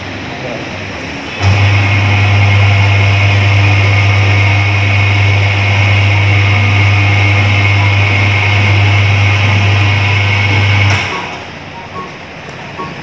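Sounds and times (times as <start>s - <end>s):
electric motor humming: 1.4s - 11.4s.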